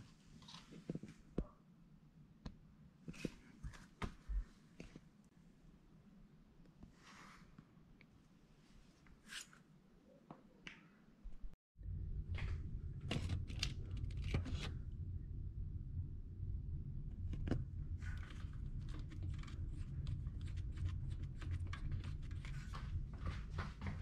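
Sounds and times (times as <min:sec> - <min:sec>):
steady low hum: 0:11.8 - 0:24.0.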